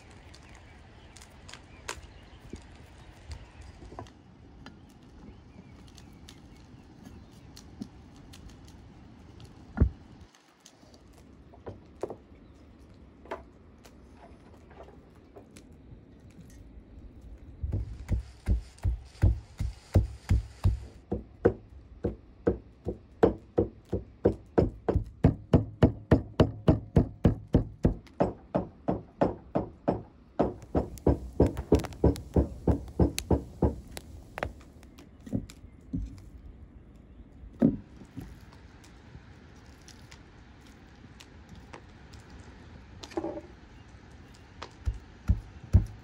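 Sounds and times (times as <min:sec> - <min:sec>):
knife chopping on wooden block: 0:44.9 - 0:46.0.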